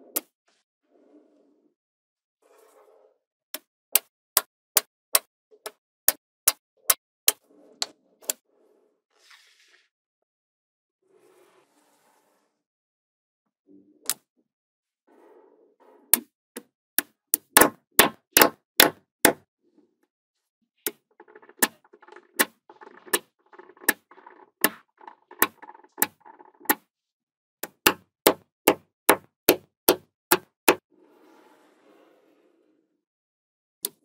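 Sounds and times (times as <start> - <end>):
magnetic balls clattering: 20.9 - 26.8
magnetic balls clicking: 20.9 - 26.8.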